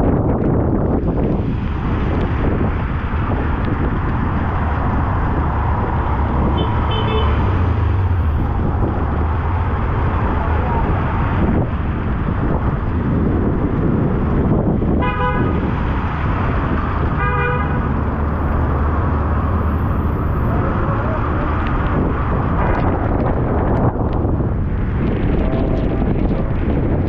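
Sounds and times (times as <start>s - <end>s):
road traffic: 0.0s - 27.0s
vehicle horn toots: 6.5s - 7.6s, 15.0s - 15.7s, 17.1s - 17.9s.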